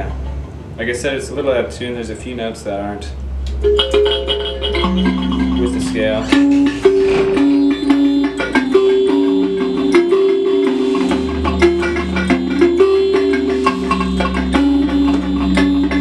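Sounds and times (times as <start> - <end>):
low hum: 3.0 - 16.0
electric thumb piano notes: 3.4 - 16.0.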